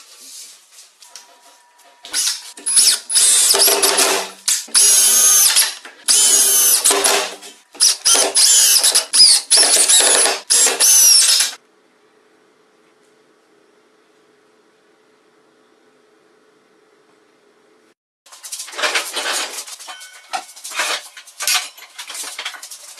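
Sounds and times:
cordless drill whining: 2.1s - 4.0s, 4.7s - 7.1s, 7.8s - 11.6s.

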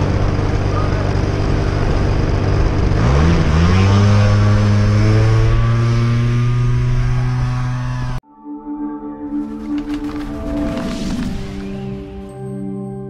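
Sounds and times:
electric motor and propeller humming: 0.0s - 8.2s.

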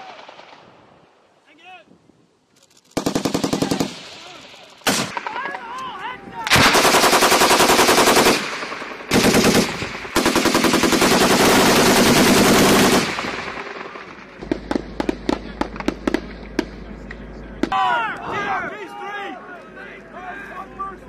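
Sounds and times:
machine-gun fire bursts: 3.0s - 5.4s, 6.5s - 16.8s.

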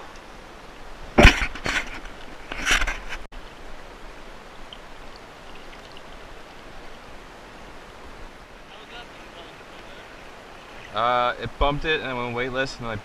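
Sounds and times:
steady wash of water: 3.4s - 13.0s
fish splashing water: 4.7s - 6.5s.

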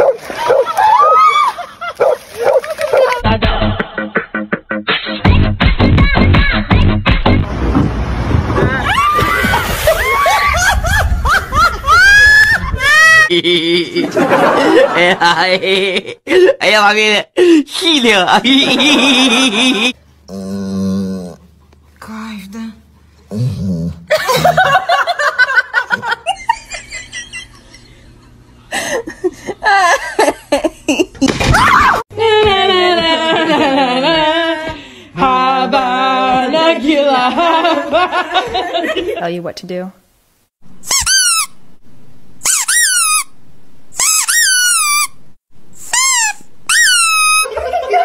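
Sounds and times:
people laughing: 0.3s - 4.0s, 9.6s - 16.5s, 18.4s - 20.0s, 24.1s - 31.3s, 32.2s - 34.8s, 37.2s - 39.2s, 47.4s - 48.0s
puppy squealing: 40.9s - 41.6s, 44.0s - 45.2s, 45.8s - 47.6s.

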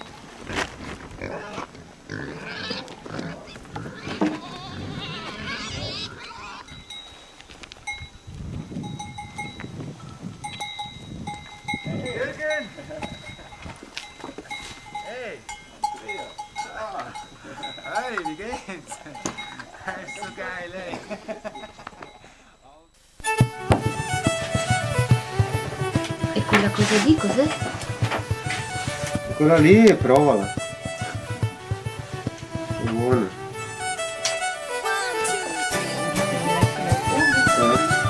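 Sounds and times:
goats bleating: 1.2s - 6.7s
goat bells ringing: 3.9s - 38.0s.

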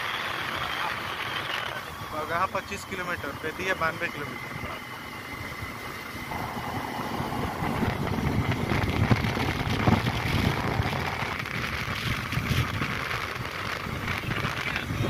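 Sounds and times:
road and tyre noise: 0.0s - 15.0s
wind buffeting microphone: 0.0s - 15.0s.

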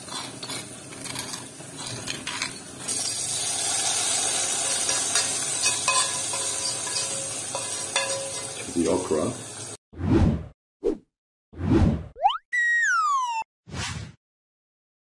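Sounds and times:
metal spoon scraping: 0.0s - 8.8s
oil sizzling: 0.0s - 9.8s
spoon clinking on pan: 4.0s - 8.7s.

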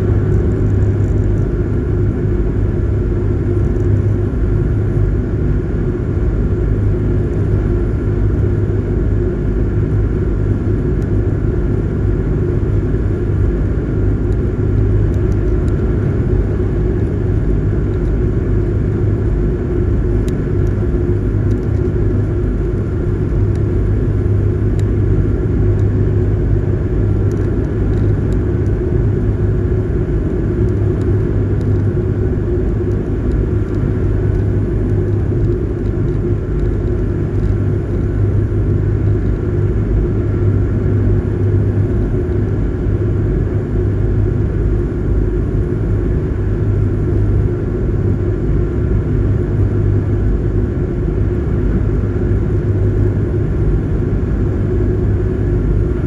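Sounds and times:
wind: 0.0s - 56.0s.

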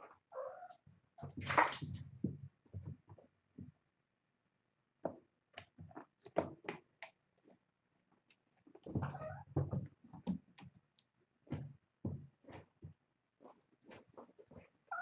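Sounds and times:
cats' paws thumping and tapping: 1.2s - 3.8s, 5.0s - 7.2s, 8.3s - 15.0s.

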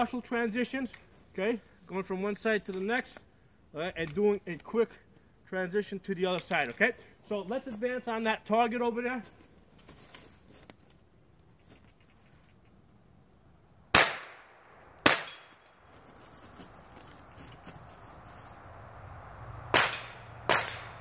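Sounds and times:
rifle shots: 13.9s - 15.6s, 19.7s - 21.0s
footsteps in snow: 15.8s - 18.8s
high metallic ring: 19.8s - 21.0s.

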